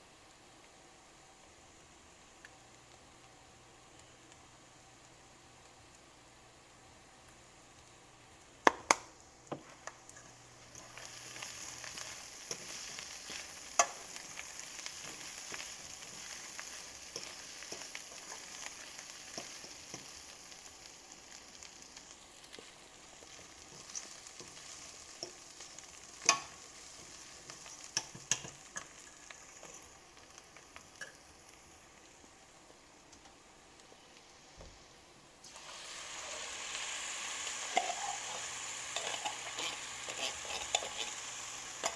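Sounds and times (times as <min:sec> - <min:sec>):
food sizzling in a pan: 0:00.0 - 0:41.9
fork scraping a pan: 0:37.7 - 0:41.2.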